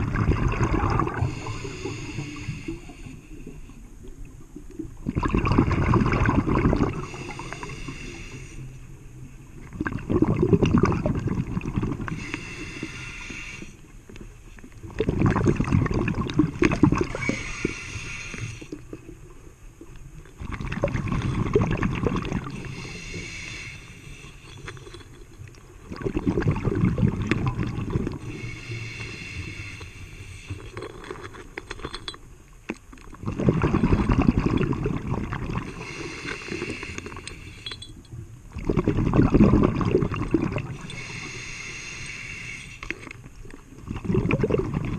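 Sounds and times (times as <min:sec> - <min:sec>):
exhaled bubbles rushing: 0:00.0 - 0:01.5, 0:04.9 - 0:07.2, 0:09.7 - 0:12.2, 0:14.8 - 0:17.4, 0:20.4 - 0:22.7, 0:25.8 - 0:28.4, 0:33.1 - 0:35.8, 0:38.5 - 0:40.9, 0:43.6 - 0:44.9
regulator hiss: 0:07.0 - 0:08.8, 0:12.2 - 0:13.9, 0:17.2 - 0:18.8, 0:22.5 - 0:24.7, 0:28.3 - 0:30.6, 0:35.8 - 0:37.7, 0:40.9 - 0:42.8.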